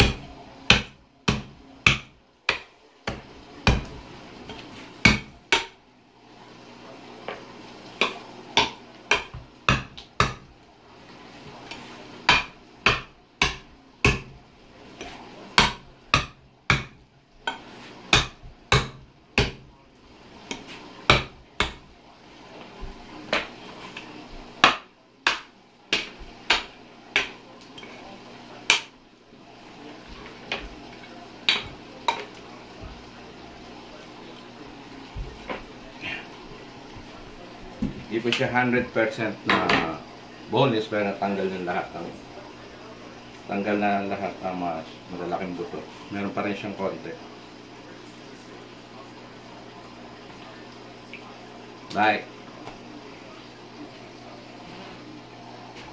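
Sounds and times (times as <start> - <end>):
cleaver chopping on cutting board: 0.0 - 3.9, 5.0 - 5.8, 8.0 - 10.5, 12.3 - 14.4, 15.6 - 19.6, 20.5 - 21.8, 24.6 - 27.4.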